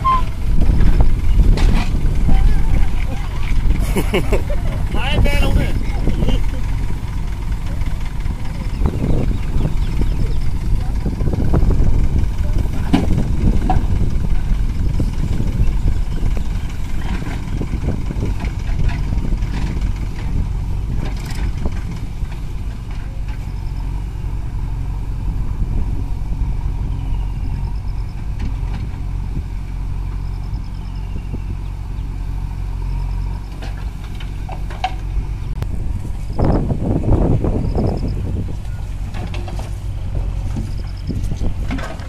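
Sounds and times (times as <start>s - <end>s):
diesel engines idling: 0.0s - 42.0s
earth clattering into trolley: 38.6s - 42.0s.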